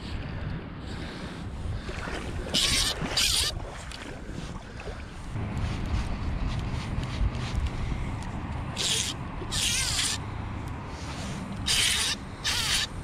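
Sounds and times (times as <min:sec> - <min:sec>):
fly line rasping through rod guides: 0:08.7 - 0:10.2, 0:11.1 - 0:13.0.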